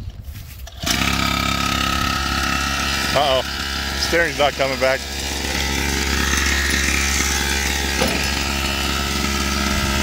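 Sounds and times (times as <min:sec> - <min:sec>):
two-stroke engine idling: 0:00.7 - 0:10.0.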